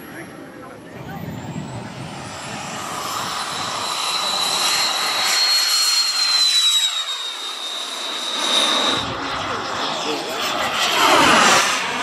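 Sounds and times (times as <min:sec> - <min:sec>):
model jet engine whining: 0:00.0 - 0:12.0.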